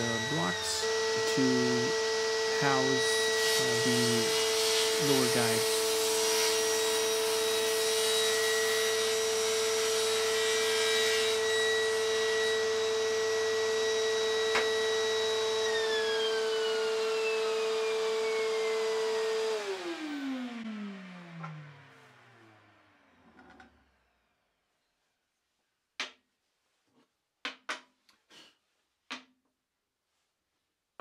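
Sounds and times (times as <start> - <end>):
saw motor winding down: 0.0 - 24.0
table saw cutting wood: 0.0 - 24.0.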